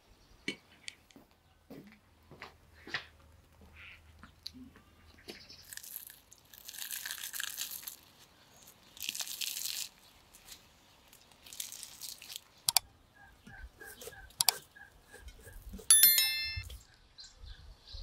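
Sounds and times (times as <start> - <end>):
bread crust crackling: 5.6 - 12.6.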